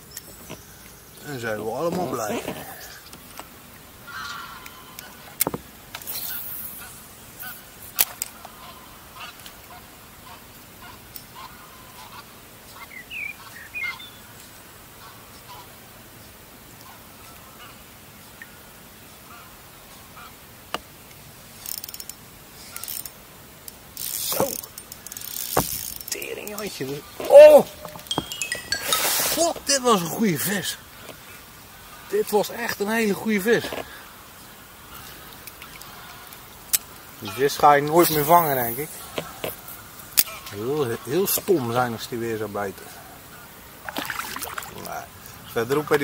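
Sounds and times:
geese honking: 4.0s - 5.3s, 8.4s - 14.1s, 19.2s - 20.4s, 26.3s - 36.6s, 39.0s - 41.8s
fishing reel drag clicking: 21.6s - 22.2s, 22.8s - 26.7s.

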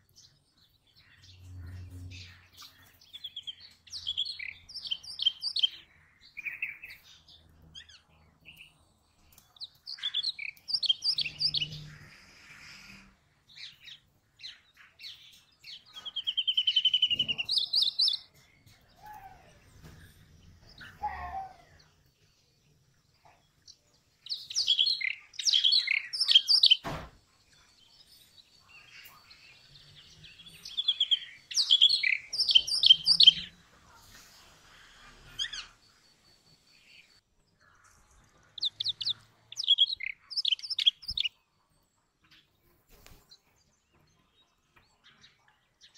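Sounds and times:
buzzy bird trill: 10.0s - 13.1s, 30.4s - 33.5s.

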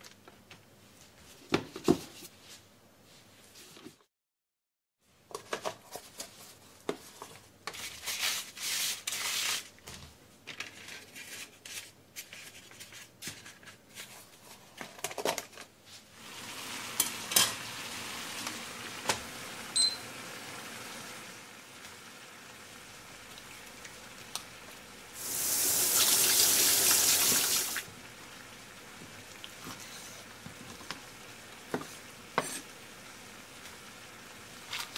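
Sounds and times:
kitchen timer beep: 19.8s - 20.1s
steamer hissing on gas burner: 25.1s - 27.8s.

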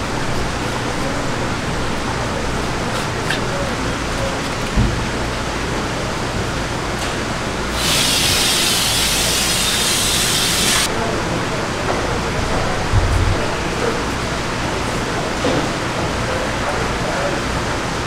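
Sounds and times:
spraying water hiss: 7.7s - 10.9s.

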